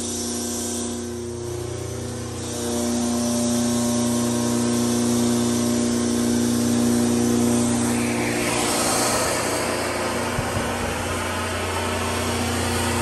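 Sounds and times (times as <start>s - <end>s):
air compressor hum: 0.0s - 13.0s
air hiss: 0.0s - 13.0s.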